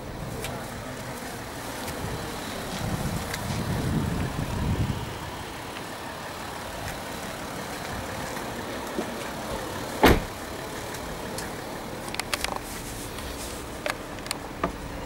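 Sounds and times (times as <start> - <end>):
car door shutting: 10.0 - 10.4, 14.3 - 14.9.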